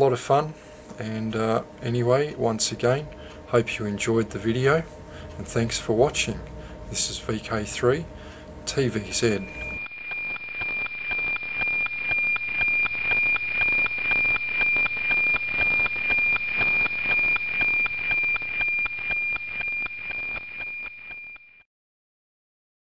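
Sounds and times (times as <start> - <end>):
steady high tone with ticking: 0.0 - 21.6.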